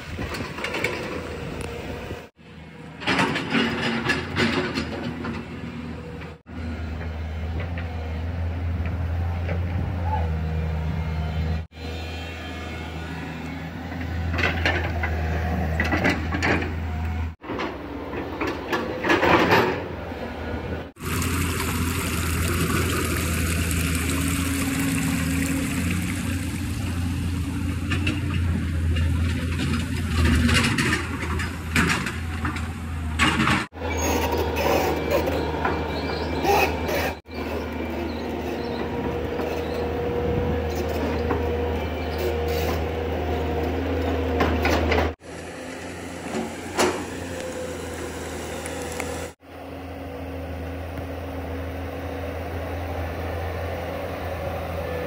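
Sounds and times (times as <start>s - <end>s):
diesel engines humming: 0.0s - 55.0s
water pouring over rocks: 21.0s - 27.1s.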